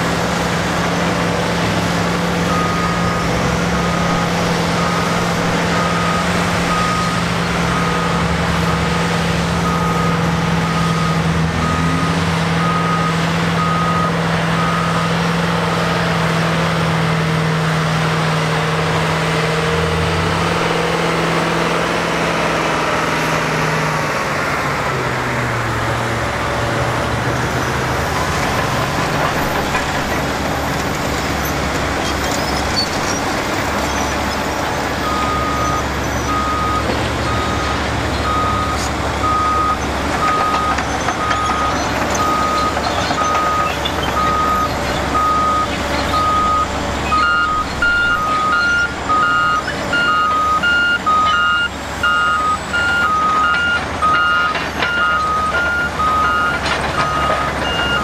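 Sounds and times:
heavy diesel machines running: 0.0 - 58.0
back-up alarm beeping: 35.0 - 58.0.

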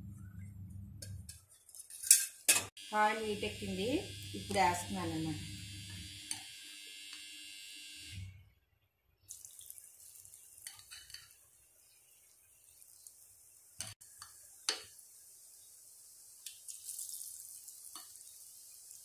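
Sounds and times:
chicken frying in hot oil: 9.2 - 19.0.

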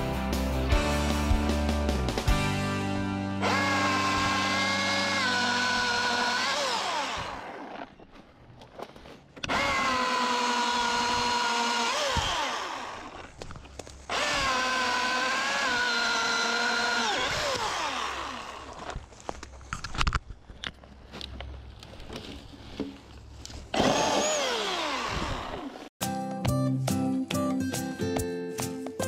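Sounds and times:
electric chainsaw motor whine: 3.4 - 7.9, 9.4 - 13.4, 14.1 - 19.0, 23.7 - 25.9.

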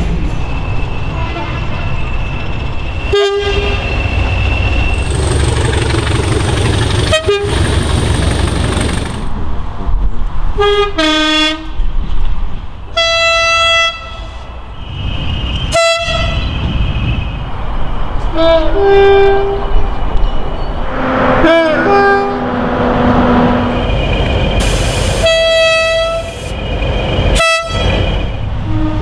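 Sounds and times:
train horn blasts: 1.1 - 1.9, 3.1 - 3.9, 7.1 - 7.6, 10.6 - 11.8, 12.9 - 14.5, 15.7 - 16.5, 20.9 - 23.8, 25.1 - 26.4
diesel engine rumble: 3.9 - 9.5, 21.1 - 28.7.

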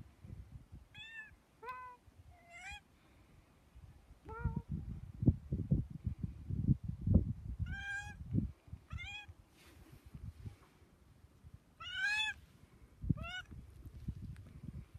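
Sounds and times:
cat meowing: 7.7 - 8.2, 8.9 - 9.3, 11.8 - 12.4.

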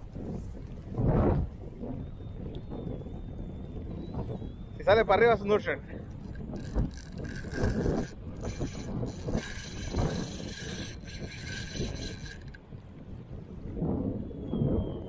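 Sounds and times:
fishing reel whirring: 6.0 - 13.0.

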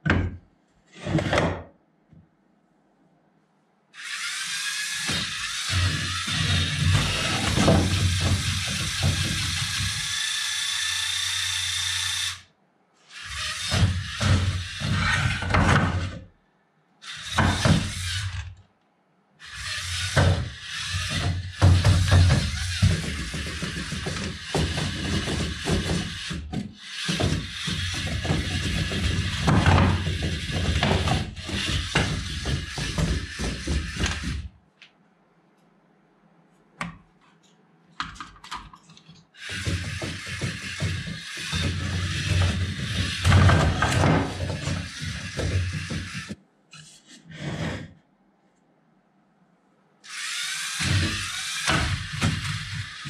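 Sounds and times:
electric motors whirring: 4.0 - 12.5, 13.1 - 16.2, 17.0 - 18.5, 19.4 - 34.5, 39.4 - 46.4, 50.0 - 53.0
wheels knocking on wooden planks: 6.8 - 9.9, 20.2 - 34.5, 39.4 - 46.4.

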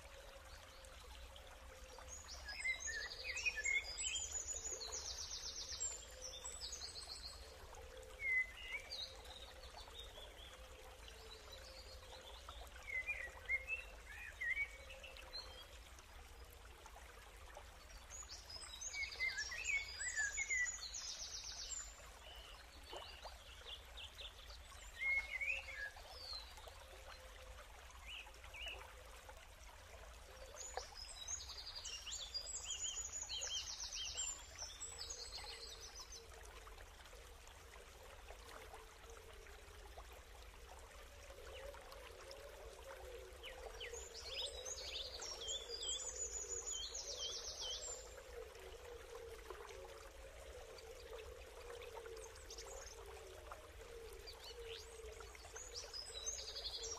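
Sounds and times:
songbird chirps and trills: 0.0 - 37.2.

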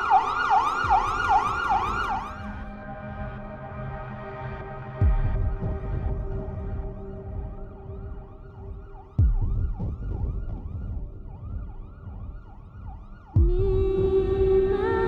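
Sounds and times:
siren-like warbling tone: 0.0 - 2.9
sustained droning chord: 2.3 - 9.0
low rumble: 2.4 - 15.0
deep booms: 5.0 - 14.9.

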